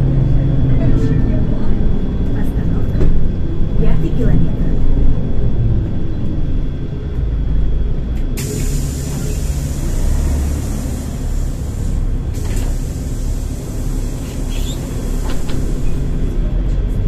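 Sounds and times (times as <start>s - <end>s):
bus engine rumbling: 0.0s - 17.0s
compressed air hiss: 8.4s - 16.3s.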